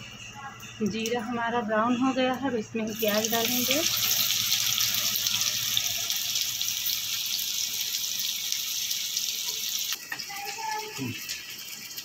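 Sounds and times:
onion sizzling in hot oil: 2.9 - 12.0.

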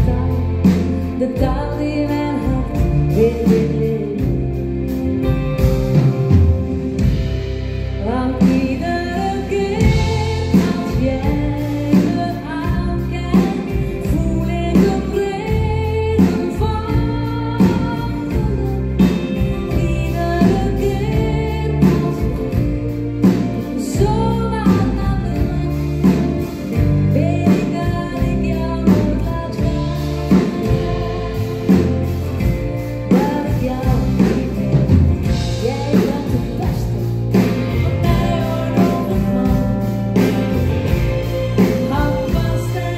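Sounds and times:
live pop band playing: 0.0 - 42.9
lead vocal singing: 8.0 - 42.9.

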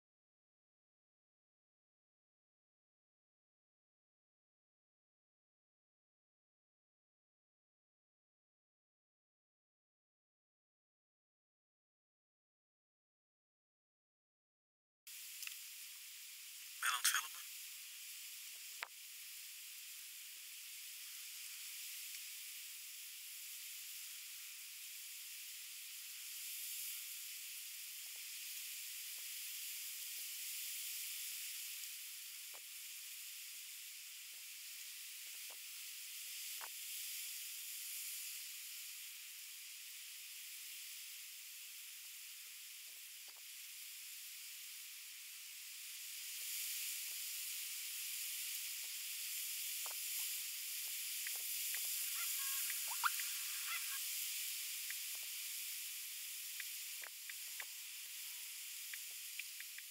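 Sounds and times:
outdoor background hiss: 15.1 - 59.9
faint ticks: 15.3 - 15.7, 18.7 - 19.0, 21.0 - 22.4, 35.2 - 36.8, 43.2 - 43.5, 48.5 - 59.9
high chirps: 52.0 - 54.0.

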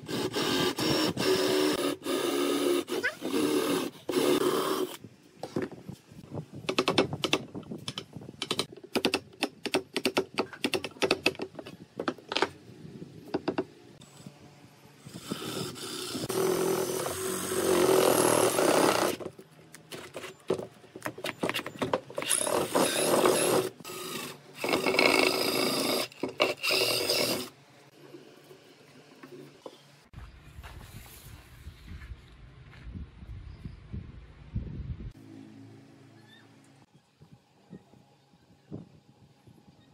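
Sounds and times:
cordless drill boring into wood: 0.0 - 5.0, 15.2 - 19.2, 22.2 - 27.5.

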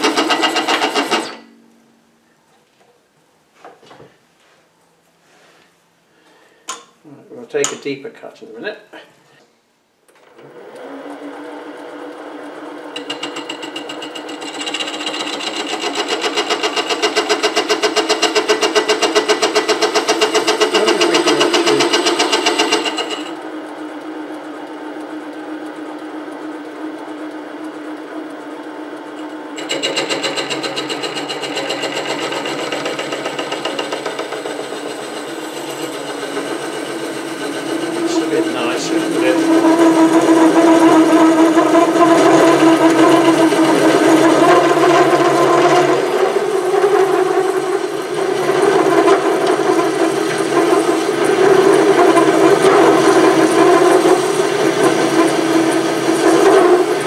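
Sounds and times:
lathe tool cutting aluminium: 0.0 - 1.5, 11.5 - 23.4, 29.1 - 57.0
lathe motor whine: 10.2 - 57.0.

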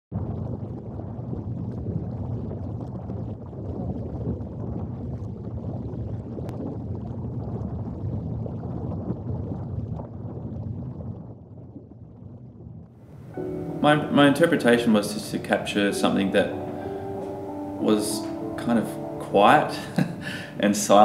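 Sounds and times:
wind rumble: 0.1 - 13.7.

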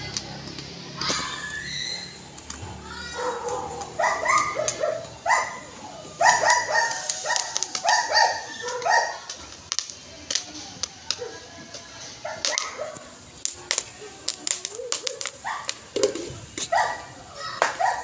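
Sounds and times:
dog yapping: 1.0 - 2.2, 3.1 - 9.3, 12.2 - 13.1, 14.6 - 15.8, 16.6 - 18.0.

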